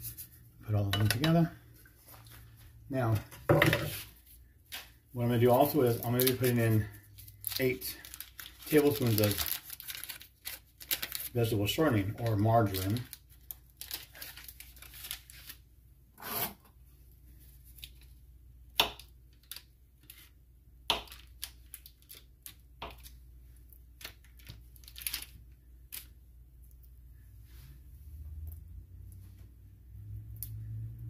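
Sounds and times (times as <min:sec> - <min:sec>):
paper wrapper tearing and rustling: 0:05.5 - 0:15.6, 0:24.0 - 0:26.1.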